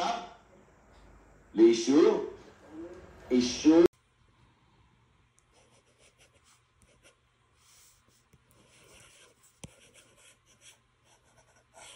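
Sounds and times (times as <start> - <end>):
stylus scratching on glass screen: 5.5 - 7.2, 7.8 - 11.9.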